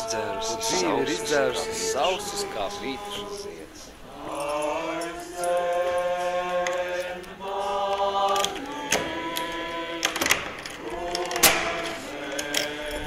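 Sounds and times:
group singing held chords: 0.0s - 13.0s
sharp clicks and knocks: 10.0s - 13.0s.

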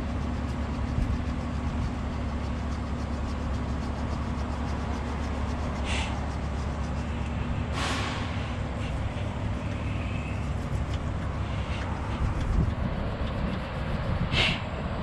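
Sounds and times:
diesel truck engine idling: 0.0s - 15.0s
short hiss: 5.8s - 6.2s, 7.6s - 10.5s, 14.3s - 14.7s.

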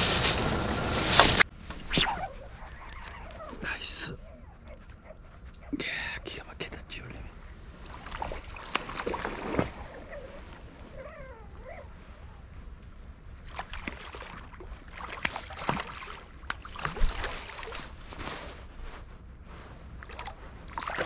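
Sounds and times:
wavering squeak: 1.2s - 3.6s
water sloshing and splashing: 7.8s - 11.0s, 13.4s - 18.6s, 20.0s - 21.0s.

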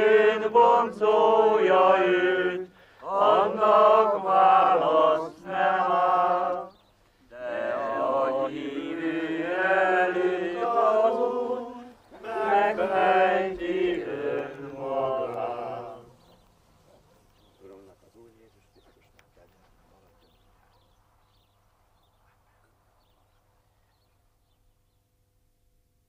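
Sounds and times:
group singing unaccompanied: 0.0s - 16.4s.

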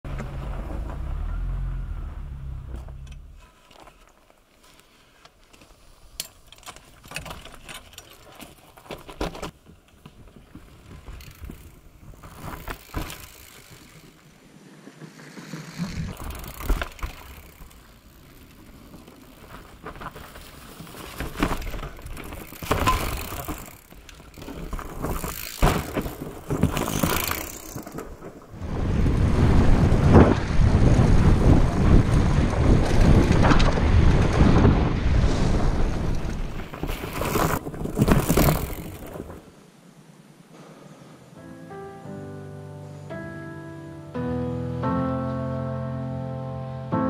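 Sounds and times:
tyres on trail: 0.0s - 41.4s
bike clicks and rattles: 2.8s - 34.8s, 35.9s - 39.5s
wind on microphone: 28.5s - 37.6s.

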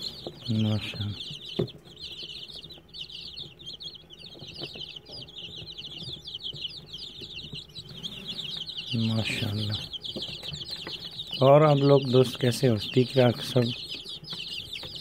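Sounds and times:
chicks peeping: 0.0s - 15.0s.

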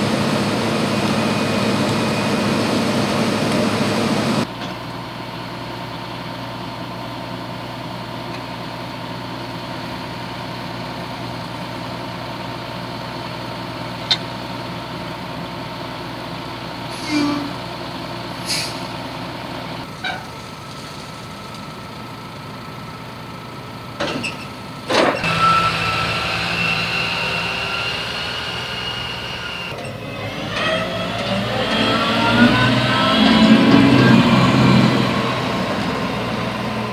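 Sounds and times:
combine harvester engine running: 0.0s - 36.9s
tractor engine with high whine: 0.0s - 36.9s.

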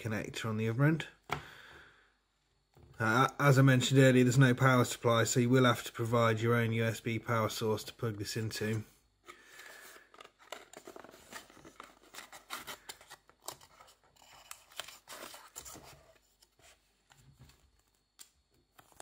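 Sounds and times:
cardboard packaging rustling: 9.5s - 19.0s.

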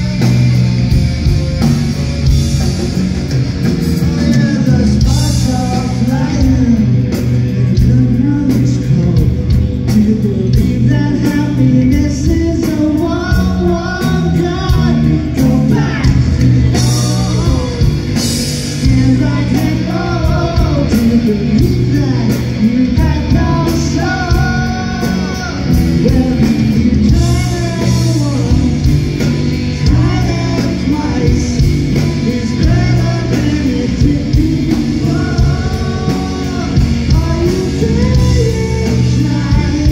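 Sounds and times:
drum kit: 0.0s - 39.9s
electric guitar: 0.0s - 39.9s
man singing: 3.9s - 39.9s.

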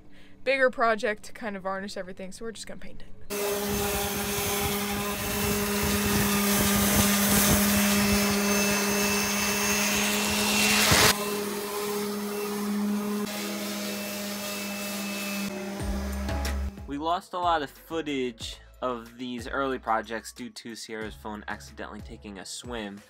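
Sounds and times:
sander grinding hiss: 3.3s - 16.8s
sander motor hum: 3.3s - 16.8s.

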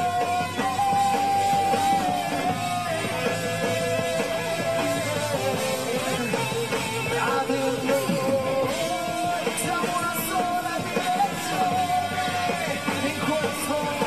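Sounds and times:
live rock band playing: 0.0s - 14.0s.

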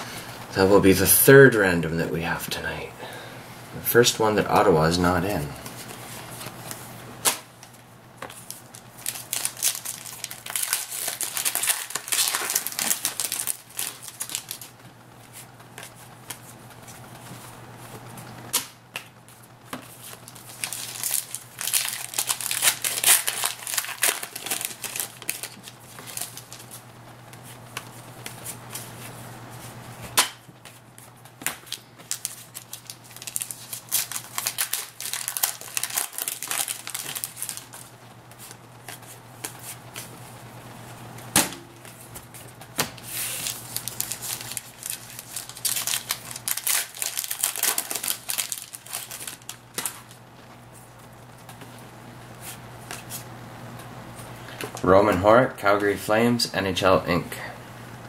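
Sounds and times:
cards riffled and handled: 5.6s - 40.2s, 41.8s - 50.8s
plastic wrappers crinkling: 7.6s - 17.4s, 19.3s - 29.0s, 30.6s - 40.2s, 41.8s - 51.7s.

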